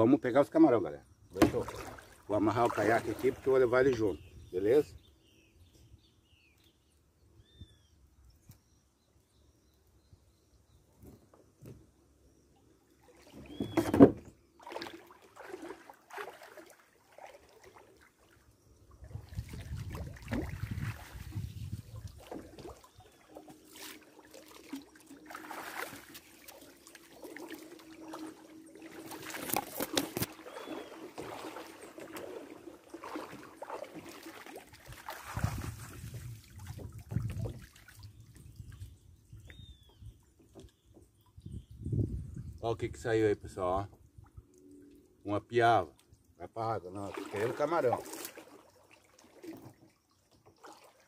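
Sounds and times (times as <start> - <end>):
river water sloshing and splashing: 1.4 - 4.2, 12.6 - 39.0, 46.0 - 51.0.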